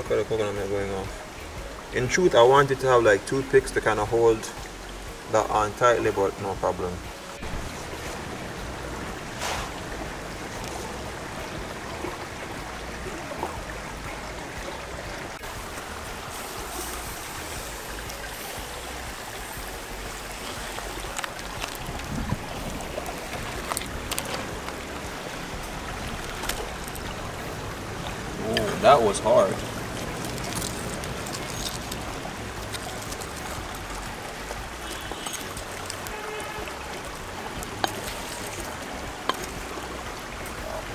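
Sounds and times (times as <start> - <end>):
steady rushing noise: 6.8 - 40.9
wood fire crackling: 15.3 - 40.9.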